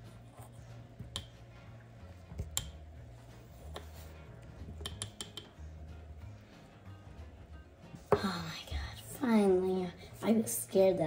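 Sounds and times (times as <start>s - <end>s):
knife tapping on cutting board: 4.8s - 5.5s.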